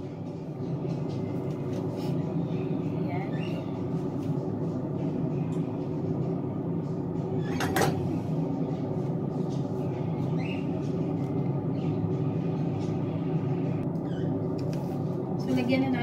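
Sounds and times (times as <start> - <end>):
steady background hum: 0.0 - 16.0
metal pot lid clanking: 7.5 - 8.0.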